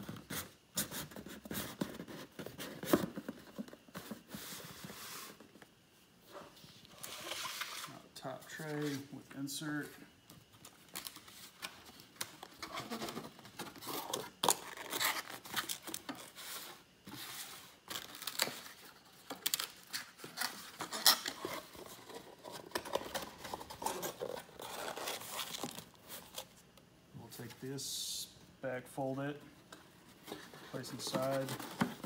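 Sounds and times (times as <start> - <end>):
cardboard creasing and scraping: 12.5 - 17.6, 30.2 - 32.0.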